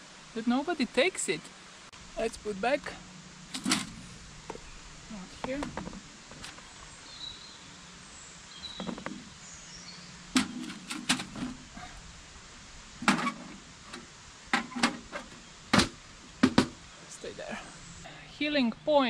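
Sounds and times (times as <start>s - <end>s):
faint outdoor background: 0.0s - 19.0s.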